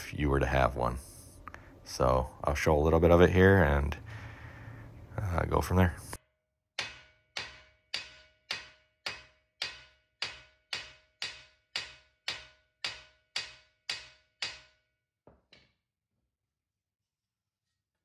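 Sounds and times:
sledgehammer striking metal axle: 6.8 - 14.8.

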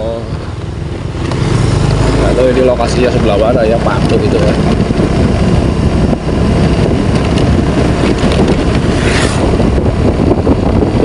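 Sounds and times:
vehicle rumble on road: 0.0 - 11.0
wind buffeting microphone: 0.0 - 11.0.

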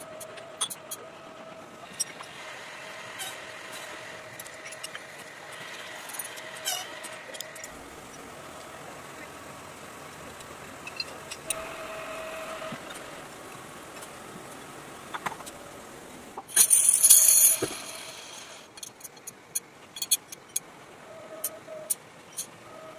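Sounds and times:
steel sprockets clinking: 16.5 - 19.3.

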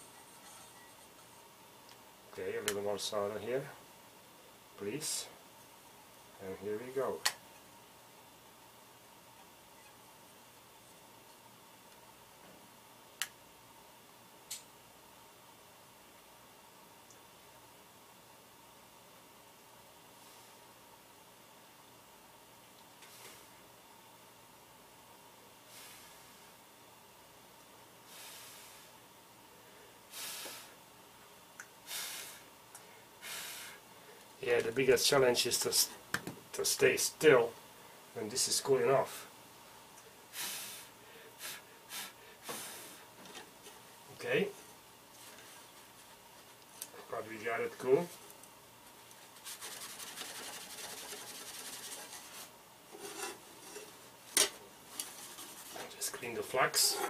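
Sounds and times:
paper towel rubbing on steel: 49.2 - 53.8.

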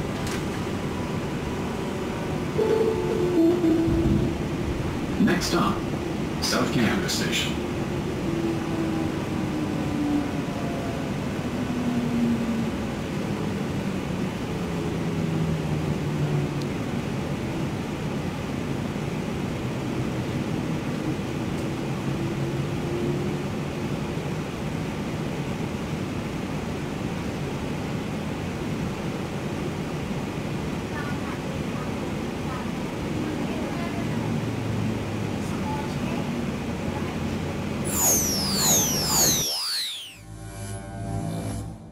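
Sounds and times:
train rumble and hiss: 0.0 - 37.8
humming tone: 0.8 - 4.6, 37.9 - 41.9.

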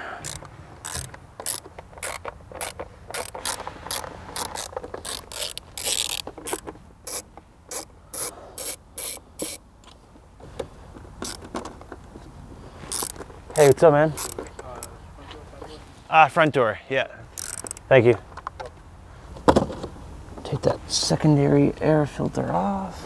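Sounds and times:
hand ratchet clicking: 0.0 - 9.6, 11.2 - 11.5, 12.9 - 14.9, 17.3 - 17.9
scraping rustle: 0.8 - 8.8.

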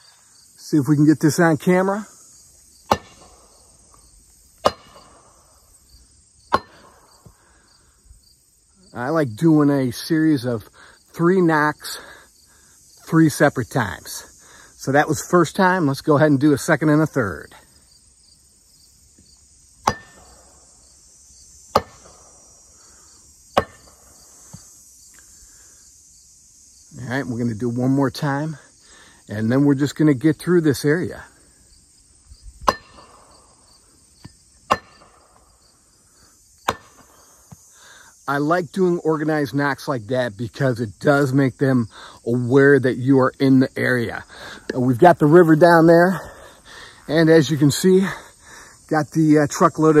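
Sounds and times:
insects buzzing: 0.0 - 50.0
wood knocking on tree: 23.6 - 24.6, 34.2 - 35.2, 36.6 - 37.6.

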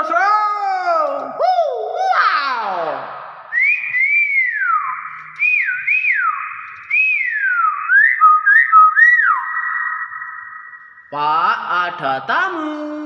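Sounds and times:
myna whistling: 3.5 - 11.2.

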